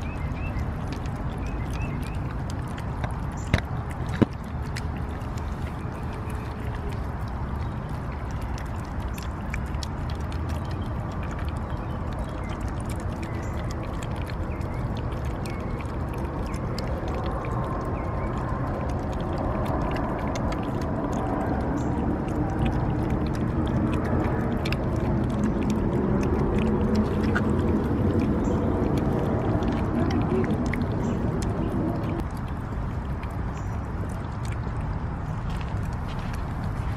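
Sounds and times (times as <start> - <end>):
cats eating wet food: 0.0 - 36.9
small clicks on plastic bowls: 0.1 - 18.6.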